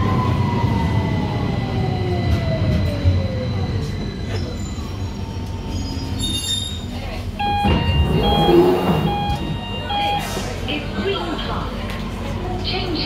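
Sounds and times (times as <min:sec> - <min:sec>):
train motor whine: 0:07.4 - 0:10.1.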